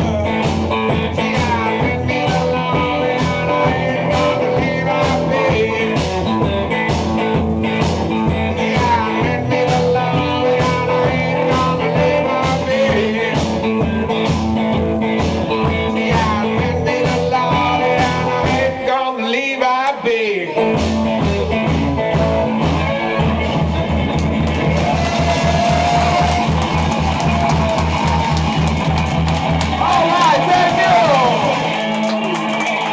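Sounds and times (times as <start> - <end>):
person singing: 0.0 - 7.4, 8.1 - 20.8
bass drum beat: 0.0 - 18.9, 20.6 - 32.9
amplified guitar: 0.0 - 32.9.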